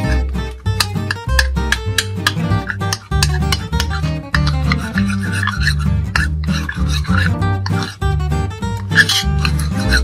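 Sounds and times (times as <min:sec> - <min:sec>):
plucked acoustic guitar: 0:00.0 - 0:10.0
steady bass line: 0:05.8 - 0:10.0.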